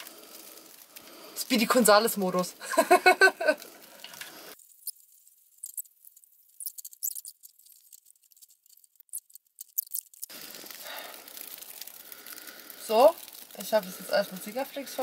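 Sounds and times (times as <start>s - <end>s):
room hiss: 0.0s - 4.6s.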